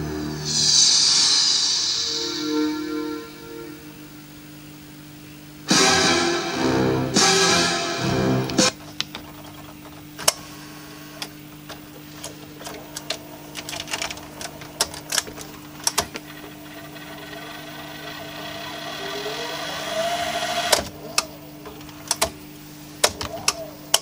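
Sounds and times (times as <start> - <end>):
tape recorder motor hum: 11.2 - 22.5
rising motor whine: 16.5 - 20.8.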